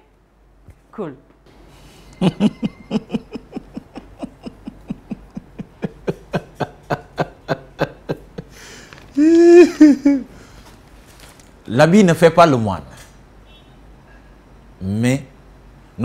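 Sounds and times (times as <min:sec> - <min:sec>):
stifled giggling: 0:02.2 - 0:08.6, 0:09.2 - 0:10.3
paper rustle: 0:10.6 - 0:11.6.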